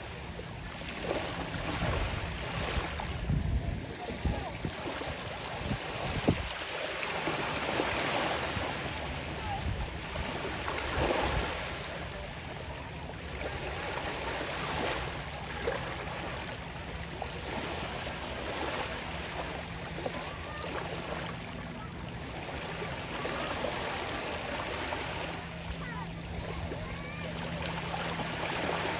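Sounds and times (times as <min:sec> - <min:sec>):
small waves lapping on sand: 0:00.0 - 0:28.9.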